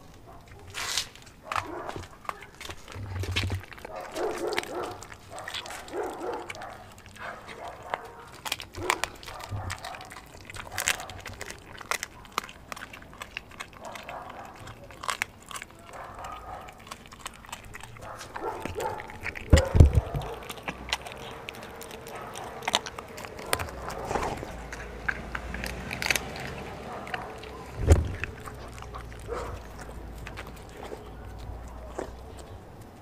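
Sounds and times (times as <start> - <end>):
dog chewing and crunching bone: 0.0 - 33.0
deep thump: 27.8 - 28.3.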